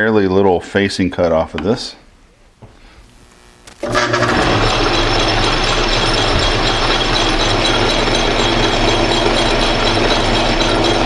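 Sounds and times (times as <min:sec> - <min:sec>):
metal lathe running: 0:03.8 - 0:11.0.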